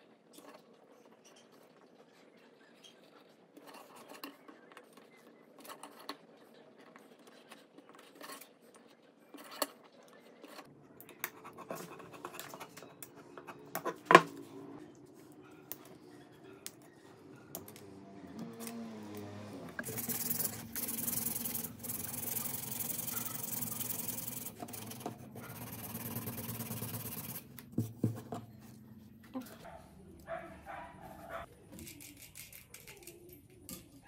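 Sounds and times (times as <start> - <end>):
knife scratching wood: 19.8 - 27.6.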